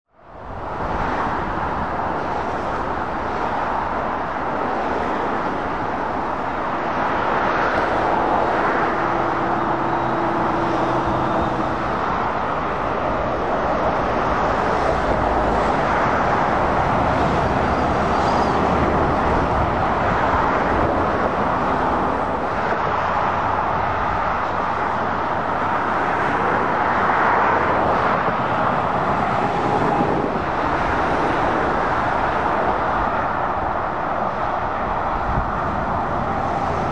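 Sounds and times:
traffic tyre noise rushing: 0:00.2 - 0:36.9
lorry diesel engine: 0:07.0 - 0:26.8.

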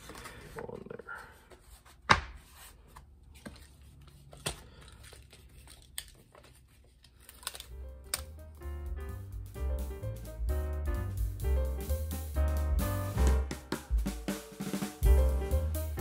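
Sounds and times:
background music: 0:07.7 - 0:16.0.

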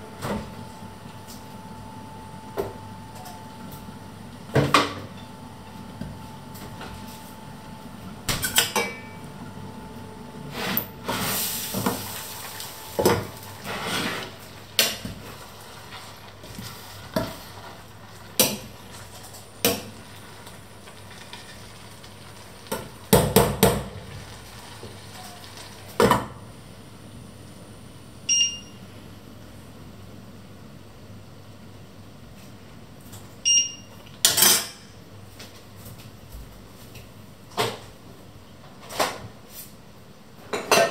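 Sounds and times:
stirring in a pot: 0:10.5 - 0:22.6.

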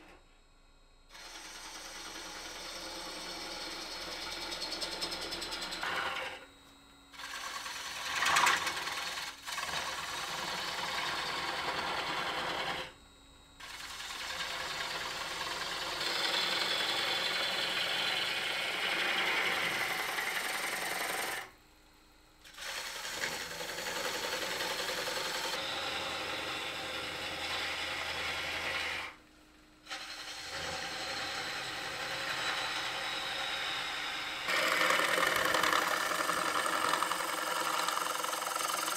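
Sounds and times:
gouge cutting wood on lathe: 0:01.2 - 0:06.4, 0:07.2 - 0:13.0, 0:13.6 - 0:21.5, 0:22.5 - 0:29.2, 0:29.8 - 0:38.9
wood lathe running: 0:01.2 - 0:06.5, 0:07.1 - 0:13.0, 0:13.6 - 0:21.6, 0:22.5 - 0:29.2, 0:29.9 - 0:38.9.

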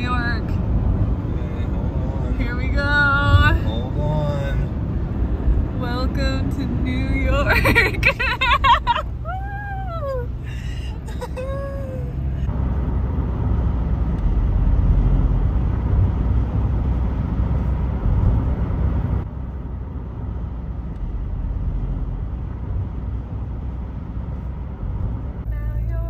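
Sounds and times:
car road and engine rumble: 0:00.0 - 0:26.0.

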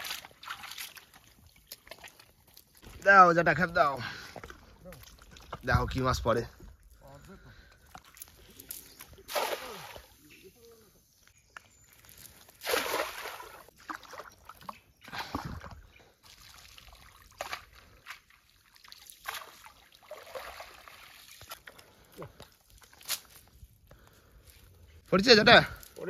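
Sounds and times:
water sloshing: 0:00.0 - 0:03.0, 0:04.0 - 0:10.4, 0:12.3 - 0:23.1
water trickling and dripping: 0:00.0 - 0:03.2.

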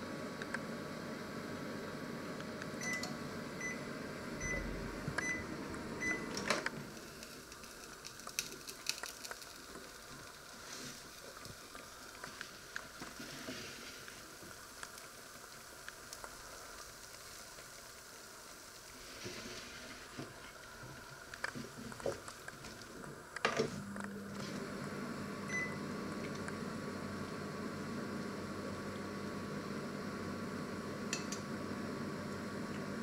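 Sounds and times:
microwave oven humming: 0:00.0 - 0:12.2, 0:20.0 - 0:33.0.

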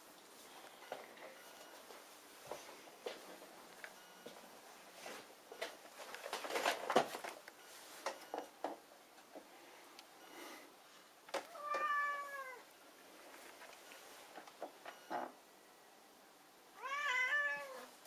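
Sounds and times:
cat meowing: 0:11.5 - 0:12.6, 0:16.8 - 0:17.9.

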